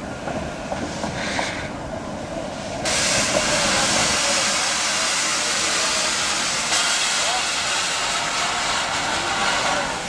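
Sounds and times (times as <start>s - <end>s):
steam locomotive wheel and motion noise: 0.0s - 10.0s
steam hissing: 0.6s - 10.0s.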